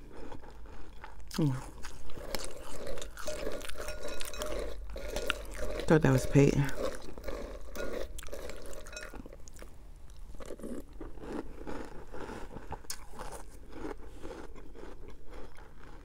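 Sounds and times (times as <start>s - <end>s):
cereal crunching: 0.0s - 16.0s
metal spoon scraping glass bowl: 2.2s - 7.0s.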